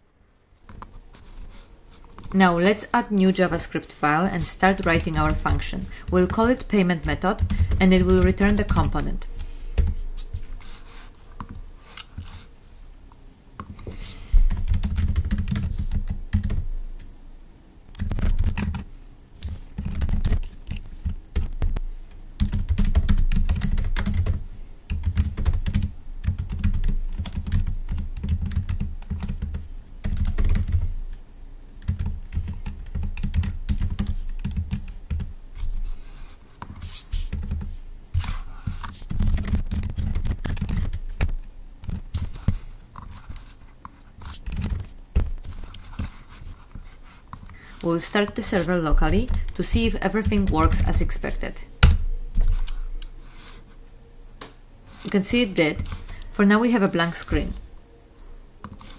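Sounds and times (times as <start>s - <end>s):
computer keyboard typing: 4.4s - 10.5s, 14.5s - 16.7s, 17.9s - 21.8s, 22.4s - 30.9s, 31.8s - 35.8s, 36.7s - 43.6s, 44.2s - 46.4s, 47.4s - 53.1s.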